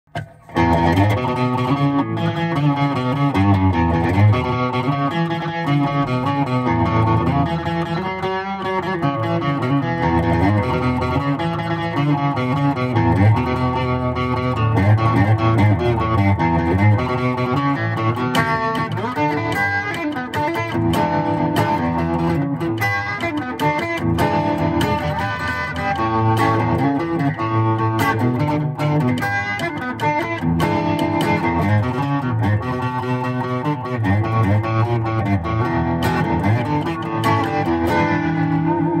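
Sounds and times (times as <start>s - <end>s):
electric guitar riff: 0.1s - 39.0s.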